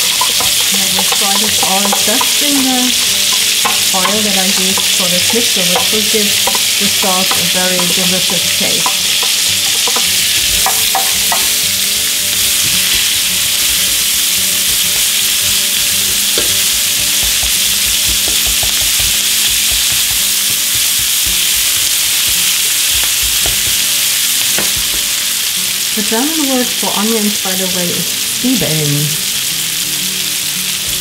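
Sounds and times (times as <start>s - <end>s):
tongs clicking: 0.0s - 11.5s
onions sizzling in oil: 0.0s - 31.0s.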